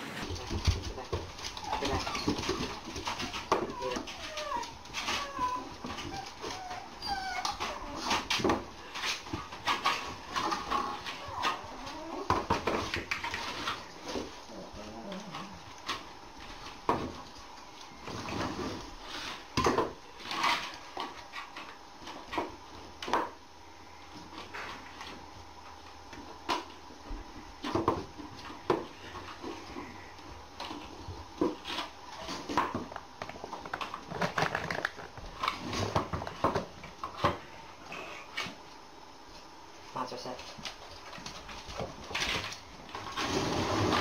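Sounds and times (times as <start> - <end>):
metal bowls clattering on wood floor: 0.3 - 6.6.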